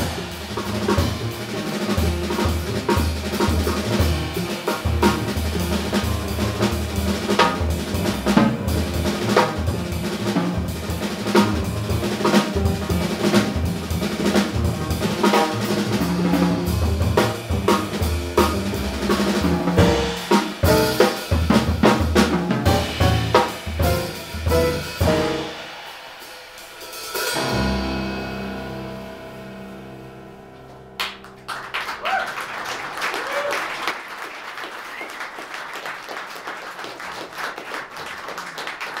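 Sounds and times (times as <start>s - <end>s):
jazz band playing: 0.0s - 25.9s, 26.8s - 31.8s
drum hits and fills: 0.0s - 30.0s
audience applauding: 31.0s - 39.0s.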